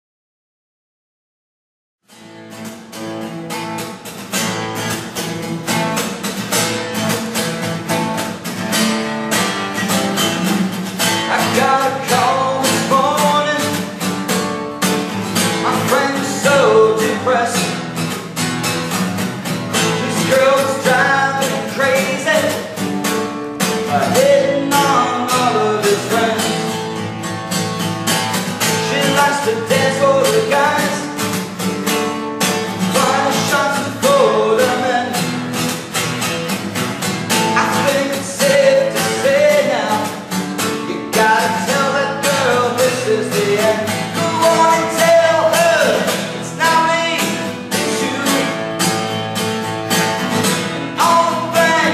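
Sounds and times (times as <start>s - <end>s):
acoustic guitar strumming: 2.1s - 51.9s
man singing: 11.0s - 14.2s, 15.4s - 18.0s, 19.7s - 22.9s, 23.6s - 27.0s, 28.6s - 31.4s, 32.7s - 35.4s, 37.3s - 49.2s, 50.9s - 51.9s.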